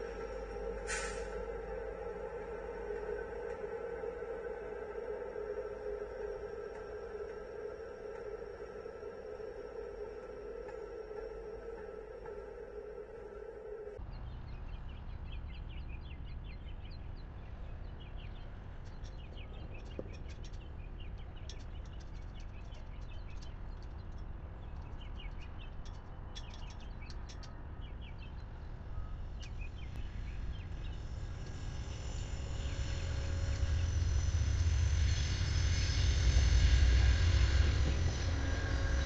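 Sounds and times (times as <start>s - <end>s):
train rumble: 0.0s - 39.0s
birds chirping and singing: 14.1s - 28.5s.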